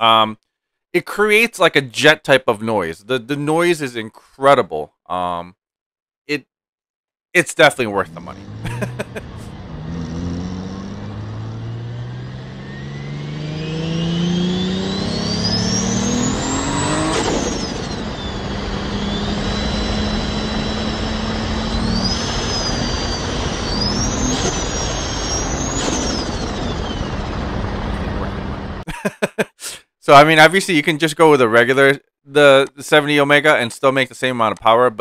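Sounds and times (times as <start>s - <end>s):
car engine accelerating: 7.8s - 28.8s
turbo whine: 7.8s - 28.8s.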